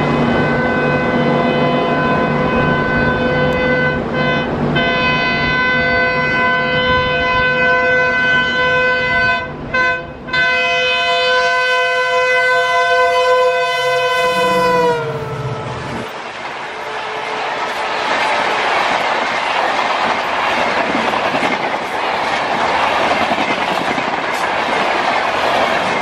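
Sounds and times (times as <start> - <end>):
locomotive air horn blast: 0.0 - 16.1, 16.7 - 18.4
engine and train rumble: 0.0 - 26.0.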